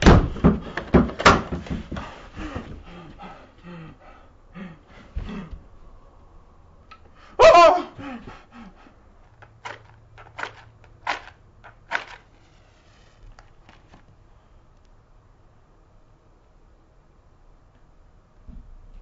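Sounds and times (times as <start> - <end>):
person crying out: 7.4 - 8.8.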